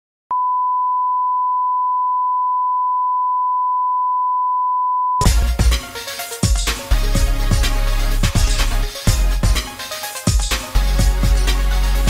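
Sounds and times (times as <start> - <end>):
music with a strong beat: 5.2 - 12.0.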